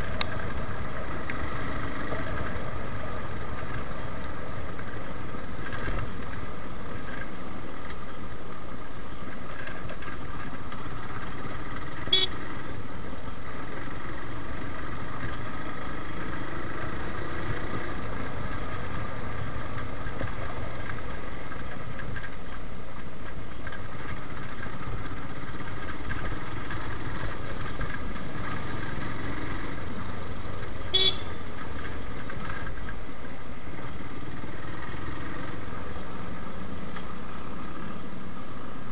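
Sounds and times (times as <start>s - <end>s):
motorcycle engine running: 0.0s - 38.9s
road noise: 0.0s - 38.9s
horn toot: 12.0s - 12.4s, 30.9s - 31.4s.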